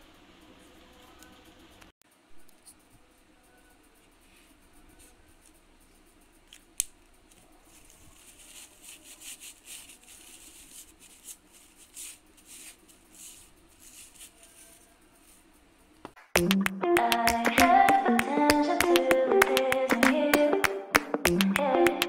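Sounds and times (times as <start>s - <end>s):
tissue rubbing on stamp: 7.3s - 15.7s.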